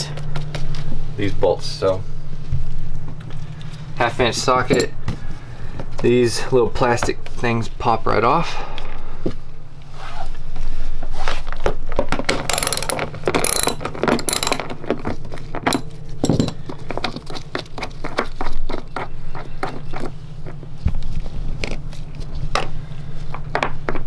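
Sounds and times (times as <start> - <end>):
socket ratchet clicking: 12.4 - 14.8, 15.7 - 16.6.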